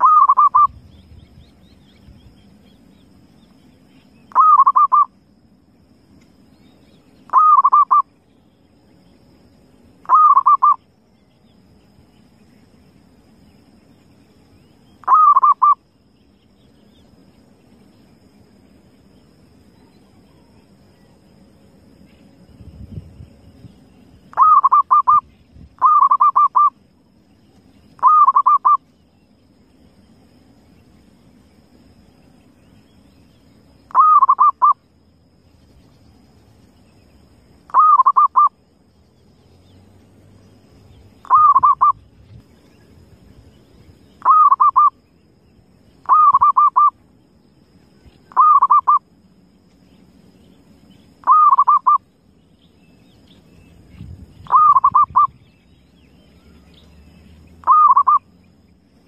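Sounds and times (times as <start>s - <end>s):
dove cooing trills: 0.0s - 0.8s, 4.3s - 5.1s, 7.3s - 8.1s, 10.0s - 10.8s, 15.0s - 15.8s, 24.3s - 26.8s, 28.0s - 28.8s, 33.9s - 34.8s, 37.7s - 38.6s, 41.2s - 42.1s, 44.2s - 45.0s, 46.0s - 47.0s, 48.3s - 49.1s, 51.2s - 52.0s, 54.4s - 55.4s, 57.6s - 58.3s
faint low rumble: 0.0s - 15.2s.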